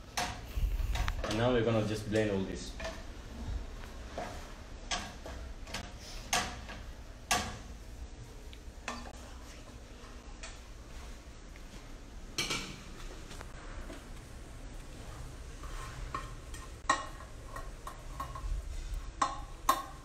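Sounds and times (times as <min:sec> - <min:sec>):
spoon scraping a frying pan: 0:15.6 - 0:20.0.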